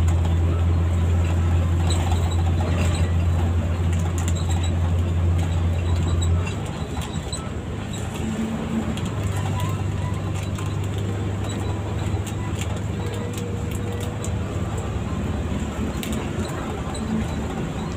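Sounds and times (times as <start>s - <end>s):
bus body rattling: 0.0s - 17.9s
bus engine drone: 0.0s - 17.9s.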